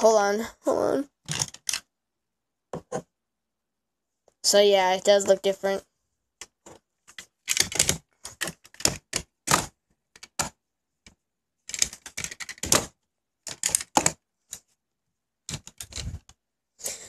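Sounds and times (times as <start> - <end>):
toy cars clattering on table: 11.7 - 14.2.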